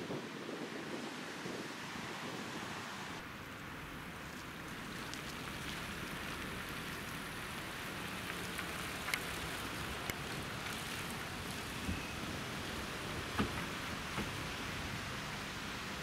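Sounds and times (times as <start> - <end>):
tyres on wet road: 0.0 - 16.0
rain hissing: 0.1 - 16.0
raindrop ticks: 4.2 - 11.6.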